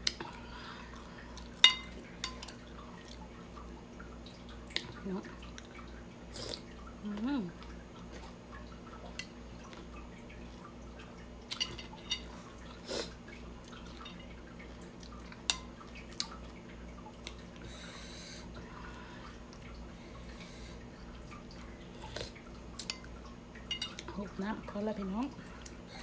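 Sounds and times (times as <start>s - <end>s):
steady low hum: 0.0s - 26.0s
wet chewing and lip smacks: 15.0s - 16.5s.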